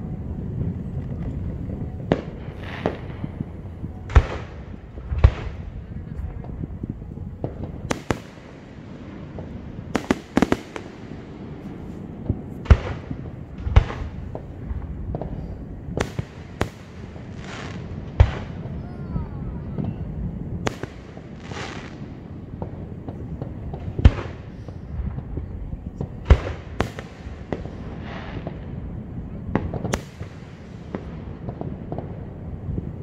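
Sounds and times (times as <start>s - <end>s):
fireworks hissing crackle: 0.0s - 33.0s
fireworks bangs: 0.5s - 33.0s.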